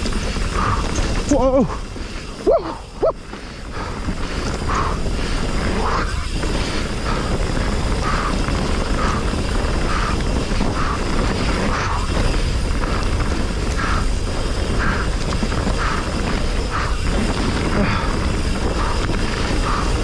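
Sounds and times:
bike tyre and drivetrain rattle: 0.0 - 20.0
wind on microphone: 0.0 - 20.0.

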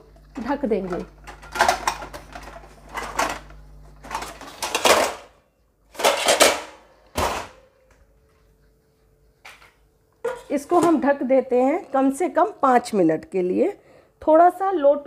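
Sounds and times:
steel kitchenware clattering: 10.2 - 11.0.

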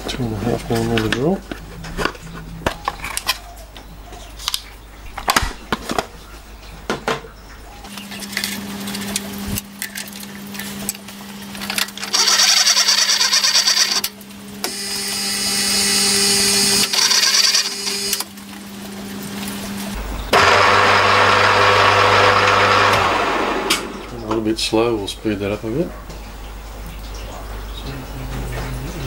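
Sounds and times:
milling machine motor humming: 7.9 - 24.2
drill cutting into steel: 12.0 - 18.3.

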